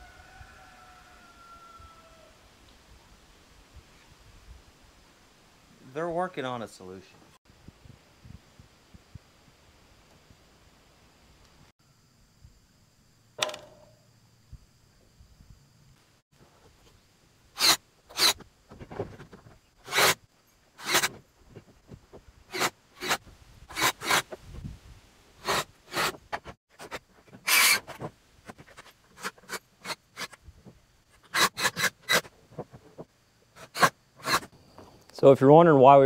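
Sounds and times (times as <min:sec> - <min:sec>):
knocks and scrapes on wood framing: 0:17.6 - 0:20.2, 0:20.8 - 0:24.5, 0:25.4 - 0:34.9.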